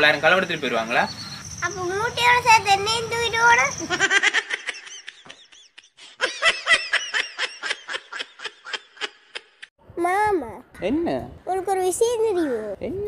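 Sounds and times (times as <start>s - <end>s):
person laughing: 3.8s - 9.7s.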